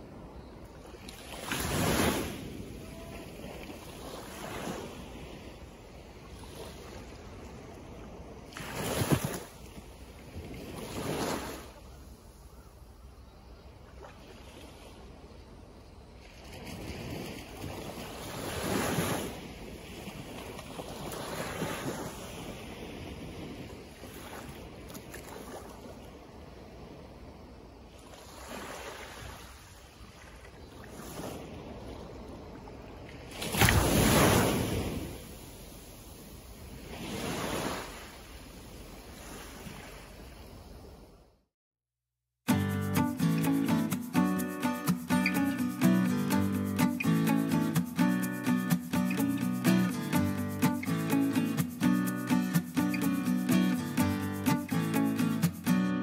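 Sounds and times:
small waves washing onto sand: 0.0 - 12.6, 13.8 - 15.3, 16.1 - 41.0, 42.5 - 56.0.

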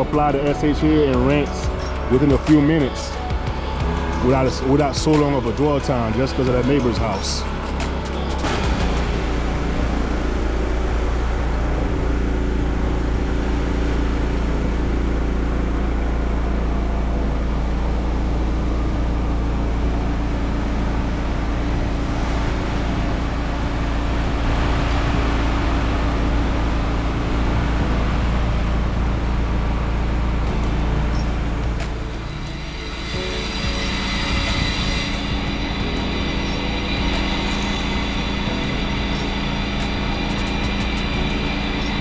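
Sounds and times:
pressure washer engine running: 0.0 - 42.0
water spraying hiss: 31.9 - 42.0.

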